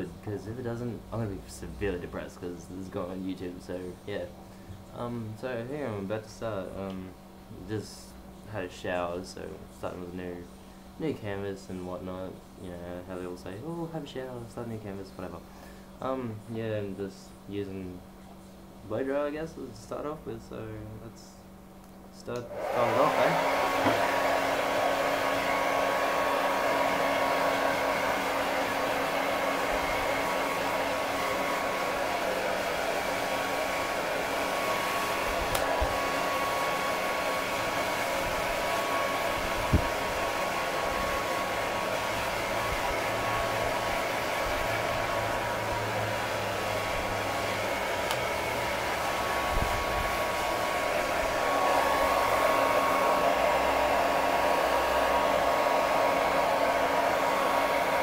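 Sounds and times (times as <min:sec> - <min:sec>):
hair dryer running: 0:22.4 - 0:58.0.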